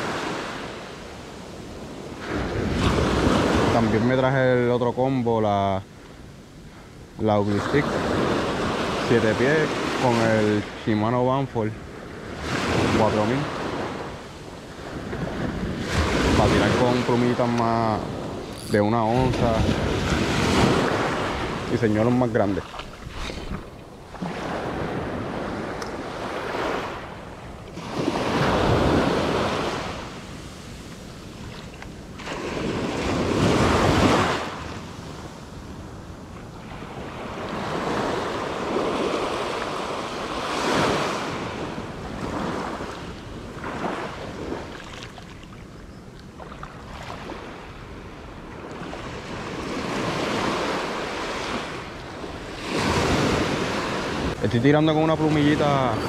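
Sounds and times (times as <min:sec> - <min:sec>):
small waves breaking on sand: 0:00.0 - 0:56.0
wind buffeting microphone: 0:12.1 - 0:50.9.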